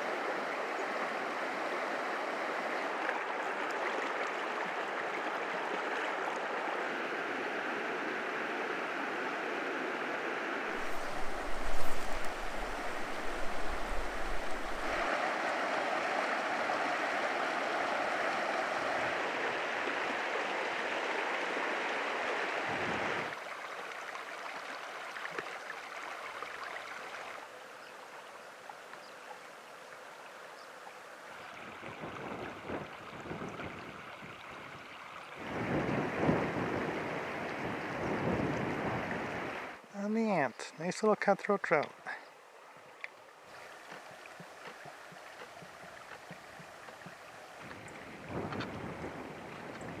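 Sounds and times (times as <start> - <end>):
creek water rushing over rocks: 0.0 - 50.0
wind gusts on microphone: 9.9 - 15.3, 22.6 - 23.4, 31.6 - 39.8, 44.8 - 50.0.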